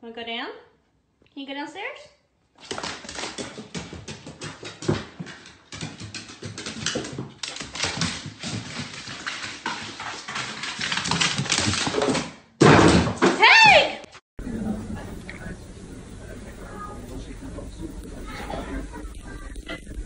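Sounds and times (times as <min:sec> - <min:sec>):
dog claws clicking on wooden stairs: 0:02.6 - 0:12.4.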